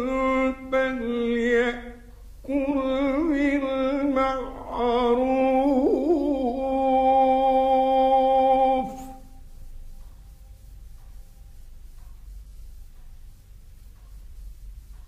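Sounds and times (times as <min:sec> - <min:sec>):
man chanting melodically: 0:00.0 - 0:09.4.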